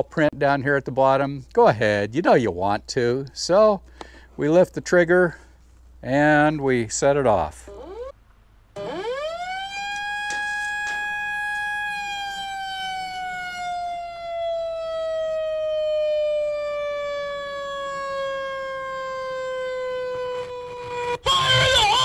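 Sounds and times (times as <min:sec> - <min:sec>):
warning siren wail: 0:07.7 - 0:08.2, 0:08.8 - 0:22.0.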